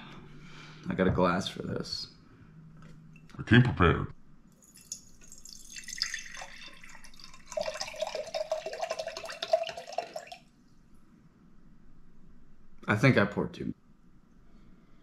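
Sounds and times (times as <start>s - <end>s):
liquid pouring into glass jar: 4.5s - 10.8s.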